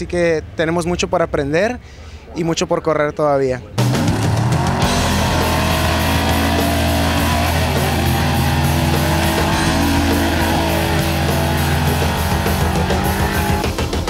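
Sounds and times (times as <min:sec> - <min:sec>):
rock music with electric guitar: 0:03.8 - 0:14.0.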